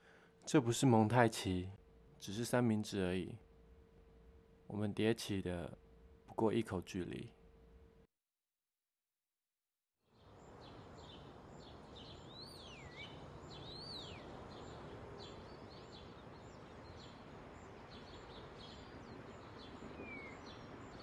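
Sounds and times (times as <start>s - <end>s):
steady background hiss: 0.0s - 8.1s, 10.2s - 21.0s
rising and falling whistled bird calls: 10.6s - 21.0s.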